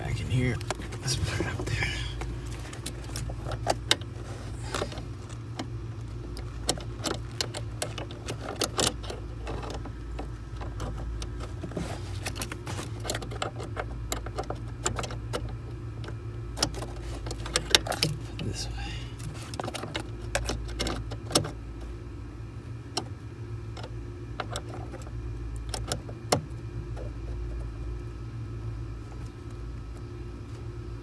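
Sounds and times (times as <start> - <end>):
steady low hum: 0.0 - 31.0
metal and plastic parts clicking: 6.3 - 11.6, 12.2 - 18.5.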